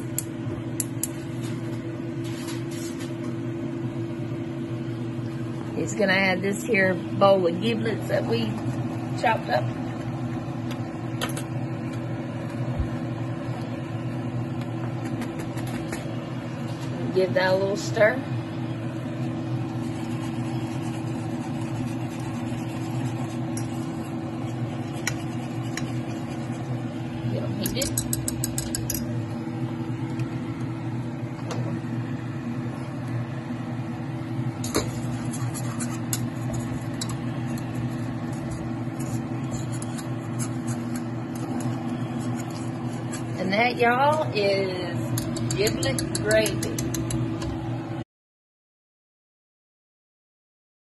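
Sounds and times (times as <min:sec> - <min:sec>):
low mechanical hum: 0:00.0 - 0:48.0
whisk clicking on pot: 0:19.7 - 0:26.8, 0:27.6 - 0:29.1, 0:34.6 - 0:43.4, 0:45.0 - 0:47.4
whisk clinking against metal saucepan: 0:20.7 - 0:24.0, 0:24.8 - 0:26.6, 0:27.6 - 0:29.1, 0:45.0 - 0:47.2.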